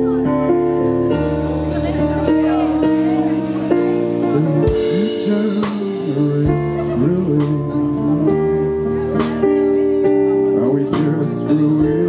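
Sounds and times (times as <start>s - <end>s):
keyboard chords: 0.0s - 12.0s
low sliding melodic line: 0.0s - 12.0s
drum and cymbal strikes: 0.9s - 7.7s.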